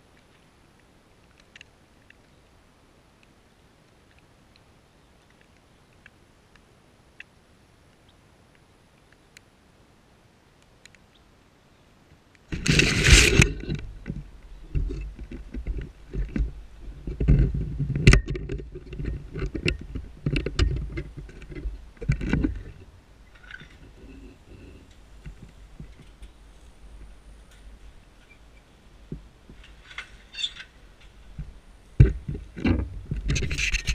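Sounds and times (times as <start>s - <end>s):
faint ticks: 0.0s - 9.5s, 10.5s - 11.2s.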